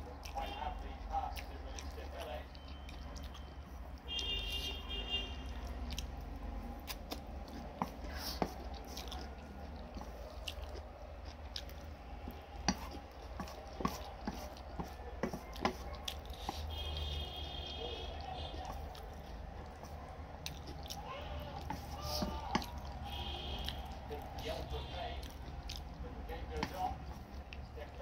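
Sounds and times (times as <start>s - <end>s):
chewing noodles: 0.0s - 28.0s.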